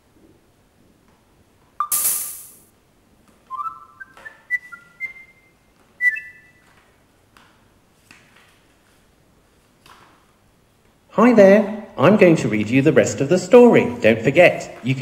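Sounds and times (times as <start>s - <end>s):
bright electronic chime: 1.8s - 2.6s
high beeping tune: 1.8s - 2.6s.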